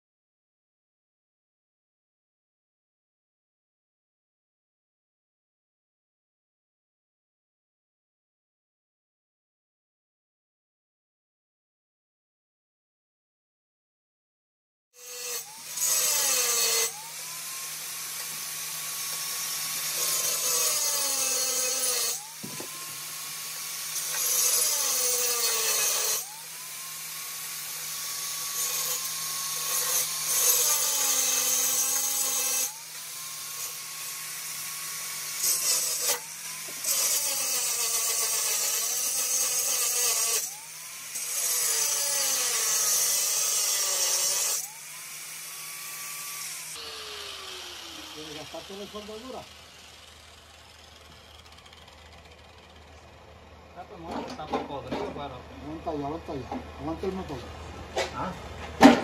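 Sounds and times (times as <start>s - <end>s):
power tool grinding: 15.0s - 59.0s.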